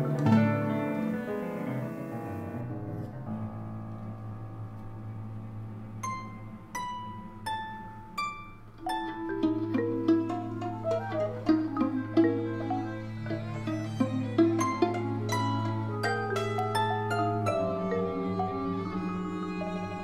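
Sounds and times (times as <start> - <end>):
plucked harp notes: 0.0 - 1.8, 6.0 - 20.0
ringing chords: 5.9 - 20.0.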